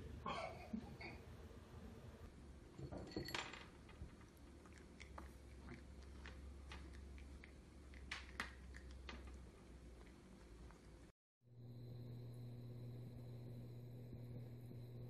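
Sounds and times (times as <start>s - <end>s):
cat crunching dry kibble: 3.8s - 11.0s.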